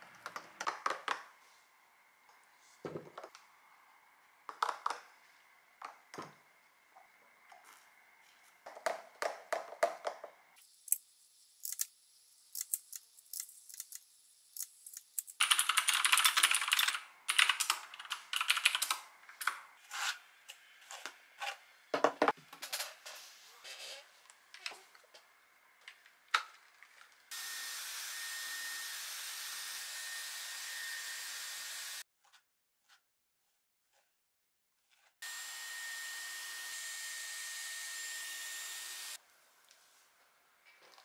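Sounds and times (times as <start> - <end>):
computer keyboard typing: 15.4 - 19.6.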